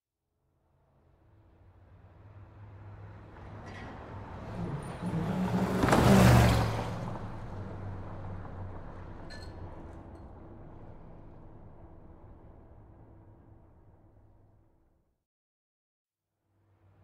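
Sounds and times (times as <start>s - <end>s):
van driving past: 1.4s - 14.7s.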